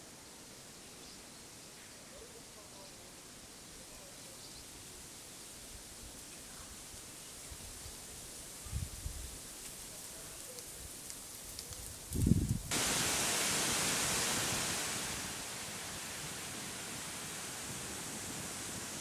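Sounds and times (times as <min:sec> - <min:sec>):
steady low hiss inside car: 0:12.7 - 0:19.0
waterfall rushing: 0:12.7 - 0:19.0.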